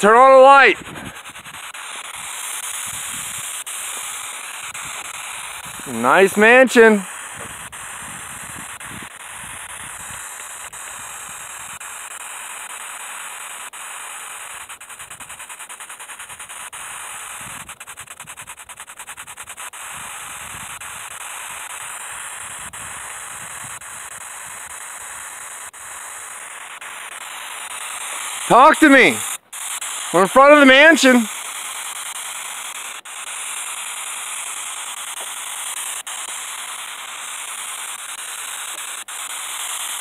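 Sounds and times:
steady outdoor hiss: 0:00.0 - 0:40.0
rapid faint ticking: 0:23.7 - 0:40.0.

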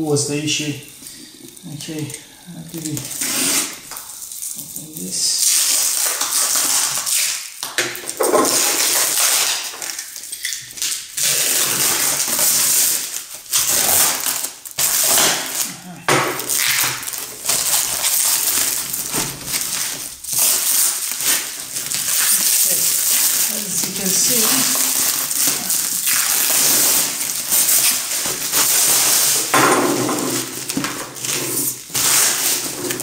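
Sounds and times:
plastic wrapping rustling and tearing: 0:00.1 - 0:33.0.

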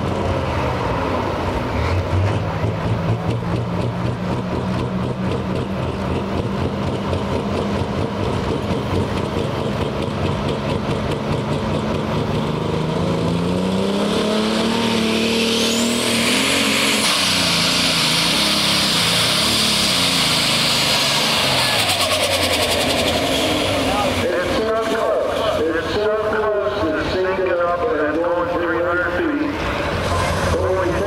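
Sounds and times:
turbocharged tractor engine revving: 0:00.0 - 0:31.0.

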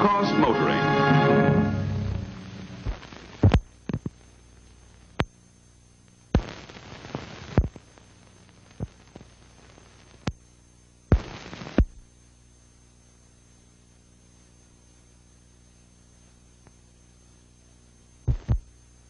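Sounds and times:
steady low hum: 0:01.2 - 0:19.0
bursts of hiss: 0:02.1 - 0:05.1, 0:06.3 - 0:10.4, 0:11.1 - 0:12.0
film pops and clicks: 0:02.8 - 0:05.4, 0:06.4 - 0:09.3.

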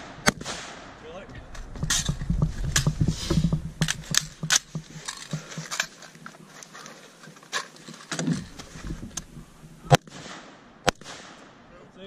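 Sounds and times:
rifle metallic clicks and knocks: 0:01.4 - 0:10.0.

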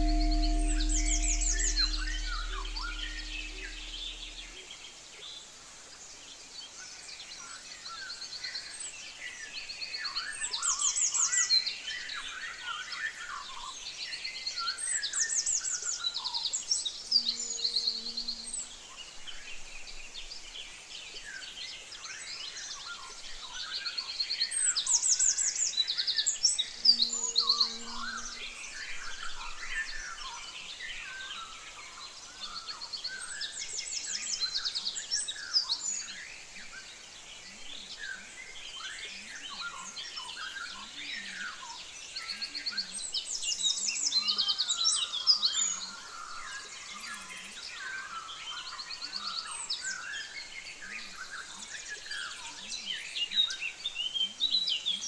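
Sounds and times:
low ringing tone: 0:00.0 - 0:04.6.

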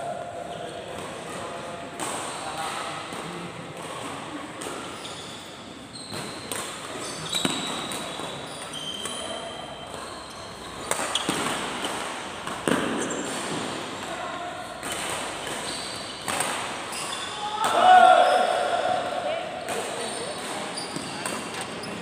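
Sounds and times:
shoes squeaking on court: 0:04.7 - 0:13.6, 0:14.8 - 0:17.5, 0:19.6 - 0:22.0
racket striking shuttlecock: 0:10.8 - 0:13.9, 0:14.8 - 0:16.9.

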